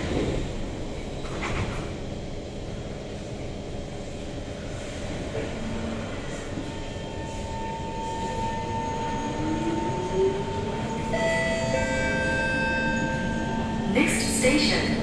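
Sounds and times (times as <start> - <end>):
low rumble of train car: 0.0 - 15.0
higher steady tones: 8.6 - 15.0.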